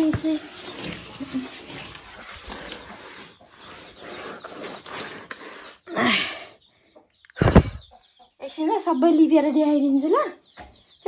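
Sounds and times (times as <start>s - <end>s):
hands smearing wet plaster: 0.0s - 5.8s.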